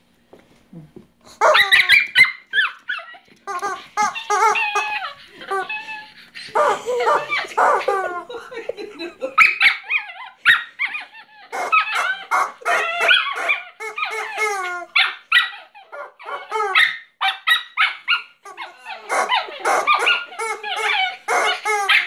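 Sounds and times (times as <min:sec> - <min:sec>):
small dog barking and yipping: 0:01.4 - 0:05.8, 0:09.4 - 0:22.0
rubber chicken toy squawks: 0:03.5 - 0:05.2, 0:11.5 - 0:14.9, 0:18.5 - 0:22.0.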